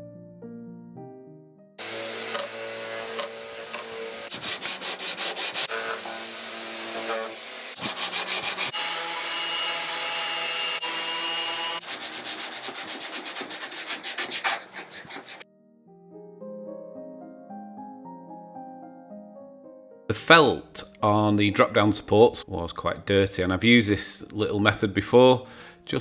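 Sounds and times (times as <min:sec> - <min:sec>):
hand sanding strokes: 0:01.8 - 0:15.4
power sander on wood: 0:01.8 - 0:15.4.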